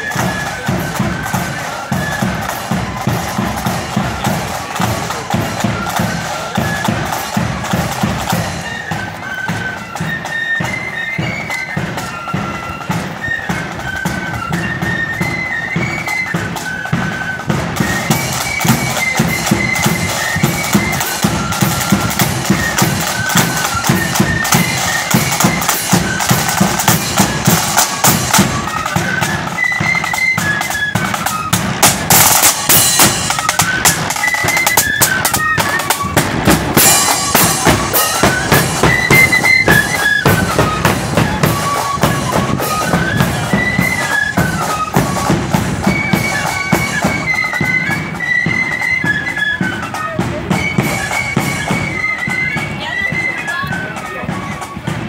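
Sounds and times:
side drums and bass drum: 0.0s - 9.2s, 16.9s - 29.5s, 31.0s - 47.2s
flutes playing a melody: 0.0s - 55.0s.

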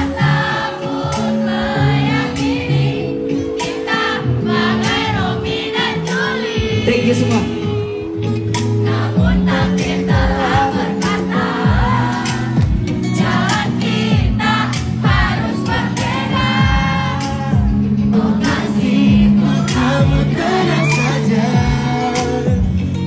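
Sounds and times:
boy band singing pop song: 0.0s - 23.0s
steady drum beat: 8.6s - 22.8s.

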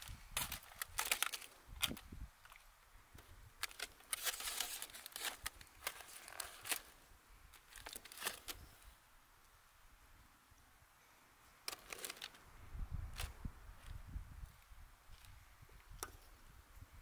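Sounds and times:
foil packet crinkling: 0.0s - 2.6s, 3.6s - 8.6s, 11.7s - 12.4s.

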